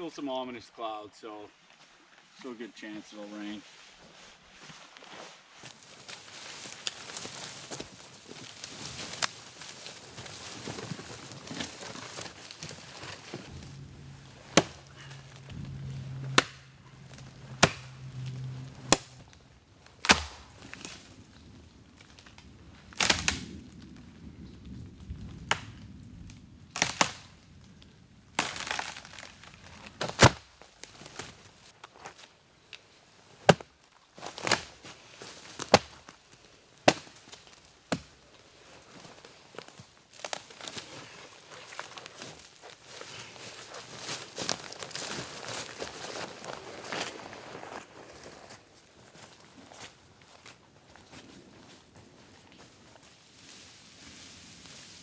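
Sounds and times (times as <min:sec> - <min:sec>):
footsteps in leaf litter: 0:01.6 - 0:19.4, 0:28.4 - 0:32.4, 0:38.4 - 0:55.0
dry wood cracking and snapping: 0:05.7 - 0:32.8, 0:33.4 - 0:47.6.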